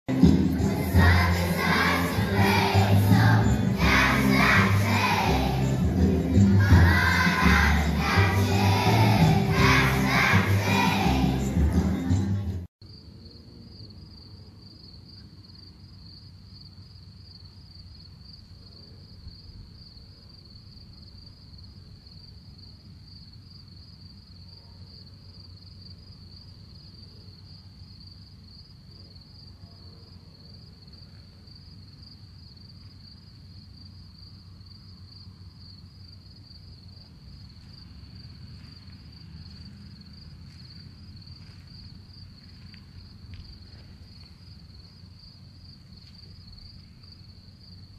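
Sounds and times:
insects trilling: 30.4 - 47.9.

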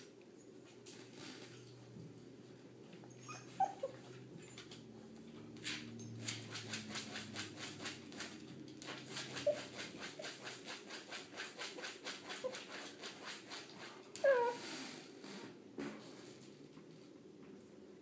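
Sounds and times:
puppy whimpering: 3.0 - 4.8, 9.2 - 9.9, 14.2 - 14.6
puppy whining: 3.0 - 4.8, 9.1 - 10.4, 14.2 - 14.7.

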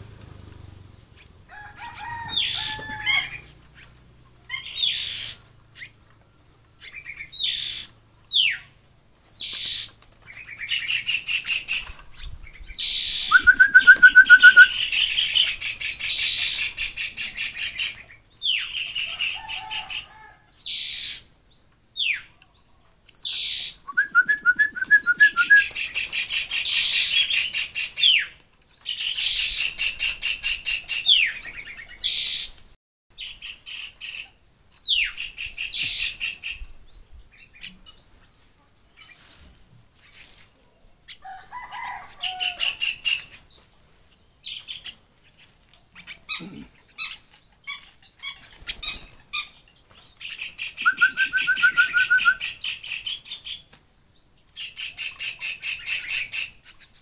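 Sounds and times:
young birds chattering calls: 0.0 - 21.4, 23.1 - 36.7, 39.9 - 53.7
bird trills: 12.6 - 19.0.

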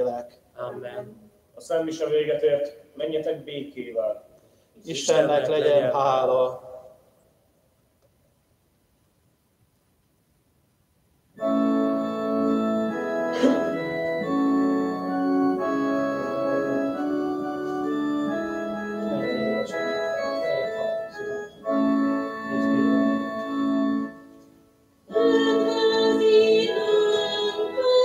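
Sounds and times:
organ playing hymn chords: 11.4 - 28.0.

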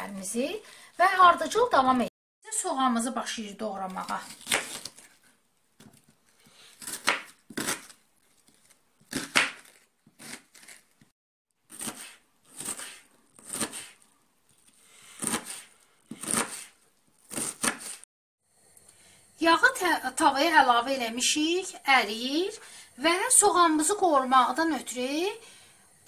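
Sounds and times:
knife chopping on cutting board: 4.2 - 5.1, 6.8 - 8.0, 9.1 - 10.7, 11.7 - 14.0, 15.2 - 18.0.

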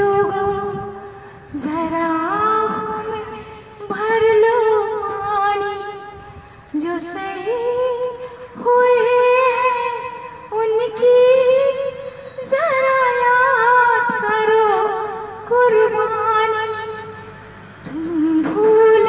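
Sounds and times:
singer breathing: 0.9 - 1.6, 6.1 - 6.8, 8.1 - 8.6, 10.1 - 10.6, 17.1 - 17.9.

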